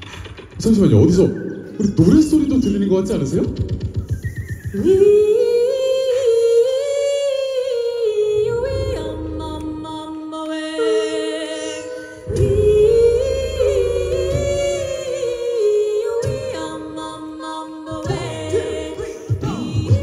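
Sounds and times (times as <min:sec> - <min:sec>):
backing voices singing: 0:04.8 - 0:20.0
lead voice singing: 0:04.8 - 0:20.0
low bass voice: 0:08.4 - 0:10.0, 0:12.3 - 0:15.3.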